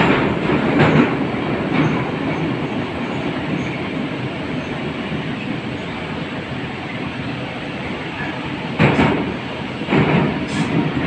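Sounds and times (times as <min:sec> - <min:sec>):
wheels rumbling on rail: 0:00.0 - 0:11.0.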